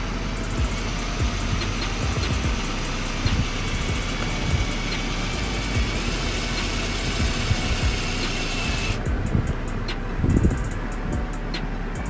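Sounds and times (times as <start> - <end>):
cordless drill boring through plastic: 0.0 - 9.0.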